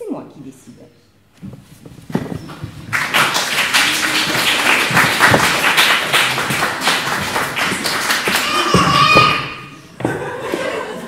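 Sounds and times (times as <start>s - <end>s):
audience applauding: 2.2s - 9.8s.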